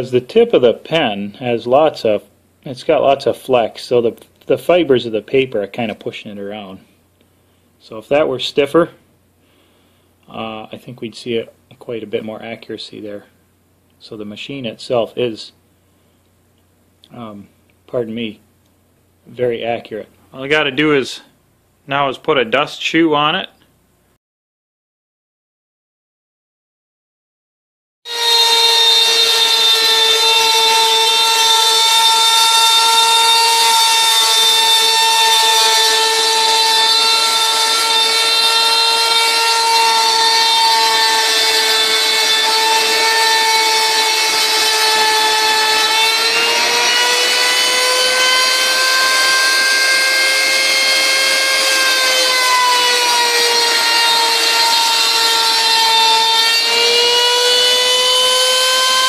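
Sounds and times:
router spindle whining while milling: 28.1s - 59.0s.

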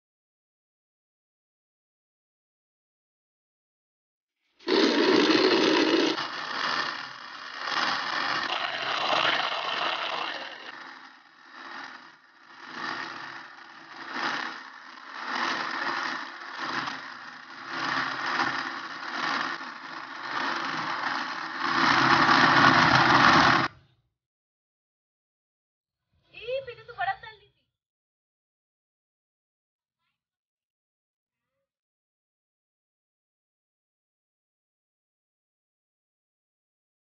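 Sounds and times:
electric blender motor running: 4.6s - 23.7s.

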